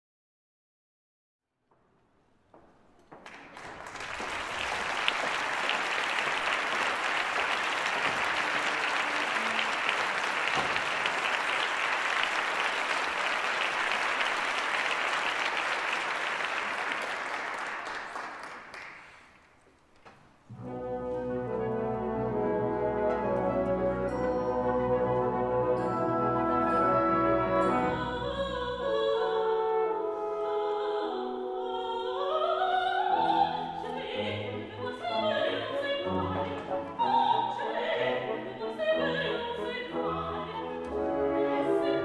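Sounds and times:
audience applauding: 0:03.0 - 0:19.5.

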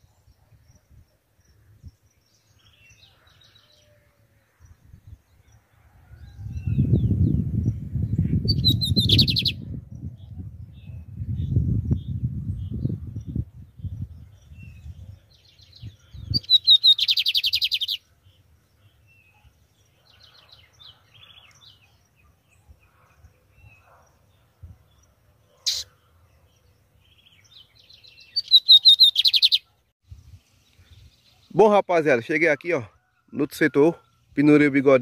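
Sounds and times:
bird singing with buzzy trill: 0:06.2 - 0:35.0
soft bird chirps: 0:08.5 - 0:31.8.

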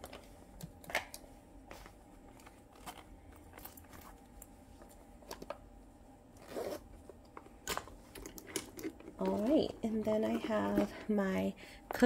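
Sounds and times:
low steady hum: 0:00.0 - 0:12.0
small items clicking and rustling: 0:07.2 - 0:11.2.

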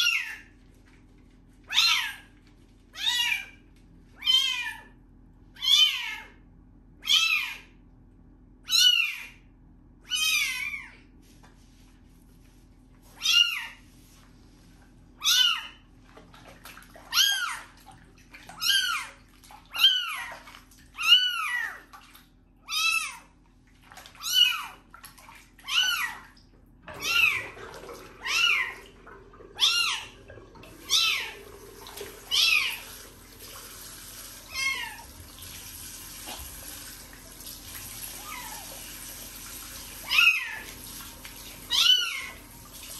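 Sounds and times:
kitten meowing: 0:27.0 - 0:27.5, 0:34.5 - 0:35.0, 0:41.7 - 0:42.4.

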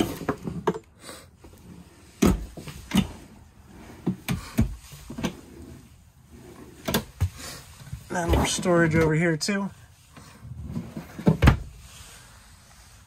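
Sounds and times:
drawers knocking and thudding: 0:00.0 - 0:00.8, 0:02.2 - 0:05.7, 0:06.4 - 0:07.4, 0:08.0 - 0:09.1, 0:10.6 - 0:11.7.

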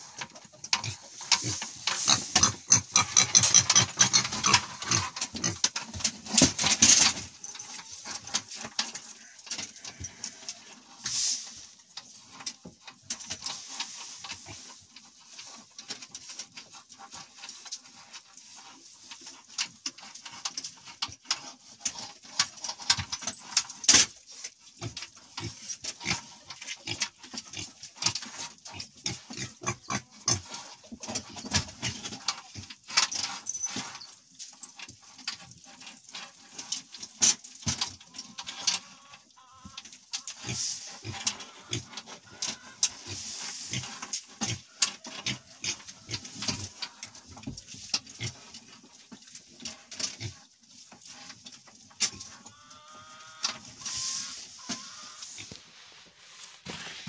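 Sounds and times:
cats chewing from metal bowl: 0:14.6 - 0:52.5.

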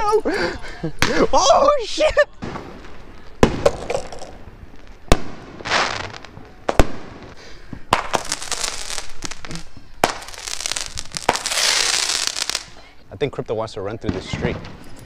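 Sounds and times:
fireworks hissing and crackling: 0:00.0 - 0:13.4, 0:14.0 - 0:15.0
fireworks bangs: 0:02.4 - 0:12.8, 0:14.0 - 0:15.0.

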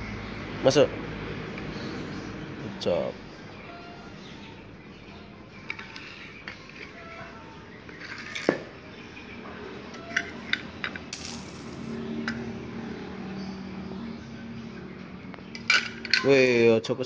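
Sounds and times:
rings clattering: 0:10.0 - 0:12.0, 0:15.6 - 0:16.7
small rings clinking into container: 0:10.1 - 0:12.0, 0:15.6 - 0:16.8.

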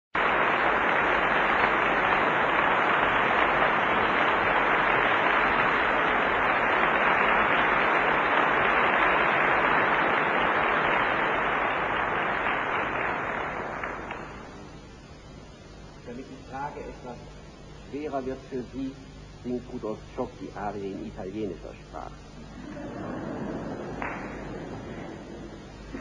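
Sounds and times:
audience applauding: 0:00.2 - 0:14.7, 0:22.5 - 0:26.0.

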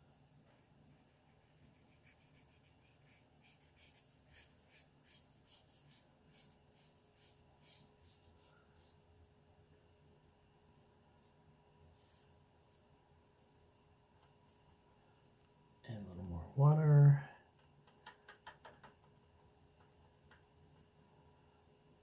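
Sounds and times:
brush swishing on paper: 0:00.5 - 0:09.0.

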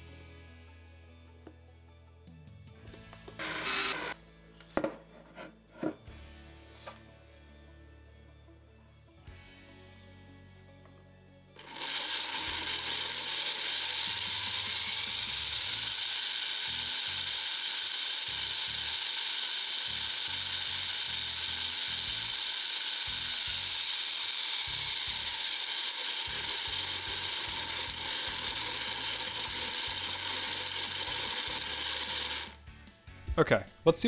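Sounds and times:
harsh gearbox noise: 0:03.4 - 0:04.2, 0:11.6 - 0:32.6.

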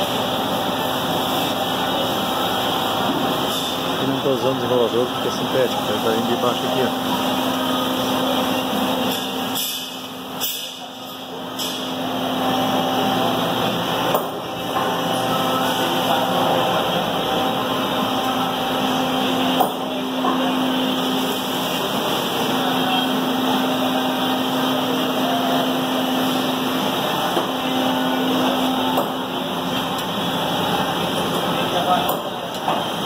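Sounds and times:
laminating machine running: 0:00.0 - 0:33.0.

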